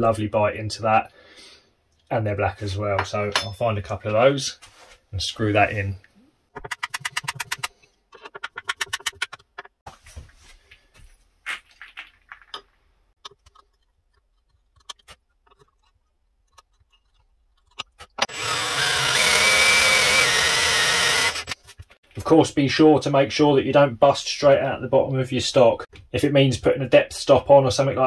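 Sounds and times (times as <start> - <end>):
cordless drill boring into wood: 18.2 - 21.6.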